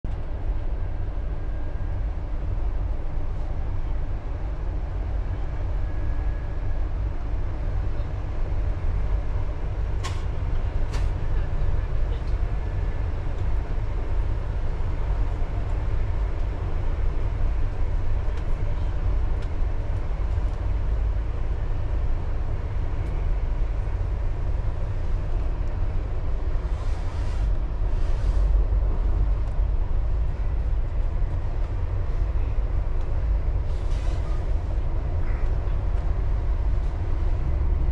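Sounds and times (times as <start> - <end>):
train cabin rumble: 8.0 - 37.9
brief hisses: 33.7 - 34.4.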